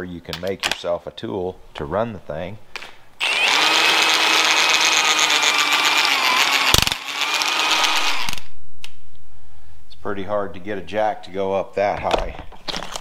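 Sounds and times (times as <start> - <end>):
power tool motor whine: 3.2 - 8.5.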